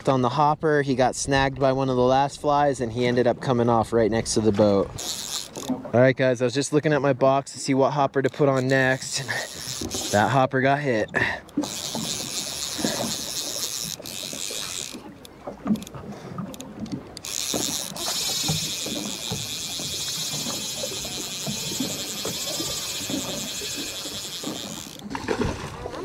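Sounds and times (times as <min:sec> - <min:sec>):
water slapping against boat: 0:03.0 - 0:26.0
fishing reel reeling: 0:04.2 - 0:05.9, 0:07.5 - 0:25.2
fishing reel drag buzzing: 0:04.3 - 0:05.9, 0:08.2 - 0:25.2.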